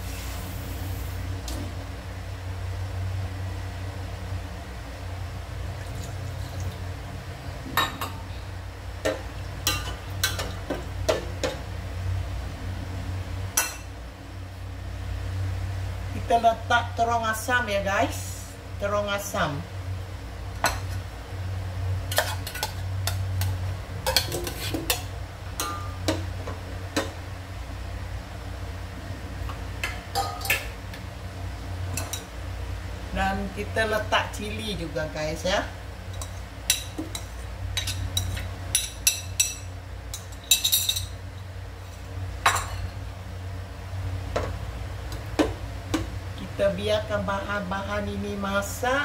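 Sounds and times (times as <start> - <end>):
low steady hum: 0.0 - 49.0
plate clinking against metal pot: 29.8 - 30.7
spoon clinking against metal pot: 36.2 - 41.1.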